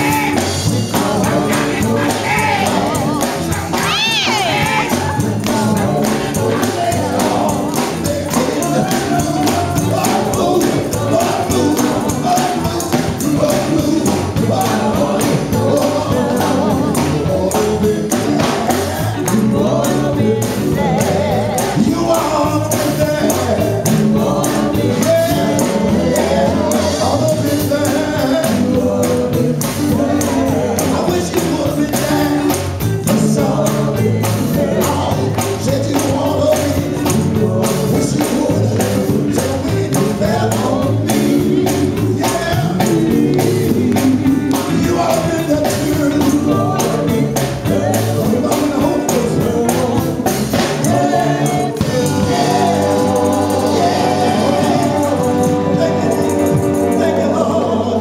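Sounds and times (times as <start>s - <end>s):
male vocal group singing gospel: 0.0s - 58.0s
percussion beat: 0.0s - 58.0s.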